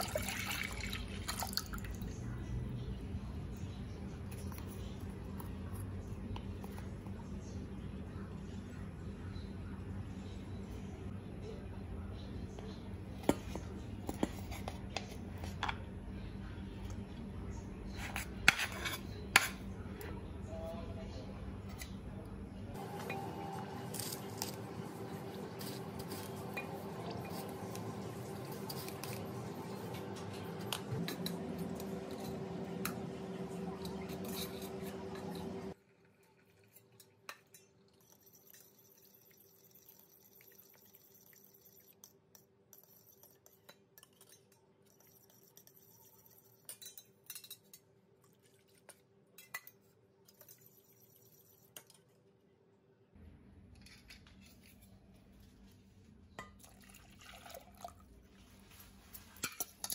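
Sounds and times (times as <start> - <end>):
steady hum: 19.7 - 35.8
cutlery and dishes clinking: 23.0 - 35.8, 42.7 - 47.9, 59.1 - 59.9.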